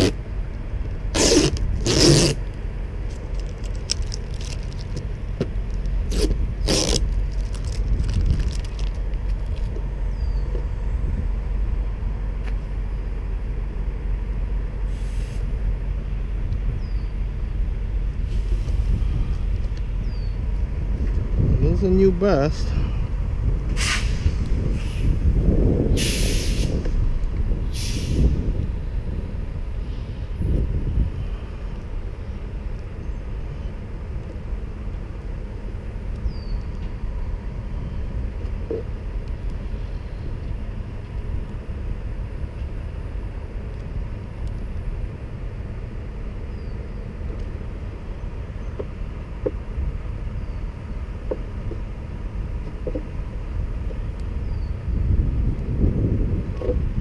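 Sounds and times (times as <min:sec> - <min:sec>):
low outdoor rumble: 0:00.0 - 0:57.0
short hissing bursts: 0:26.0 - 0:26.7, 0:27.7 - 0:28.2.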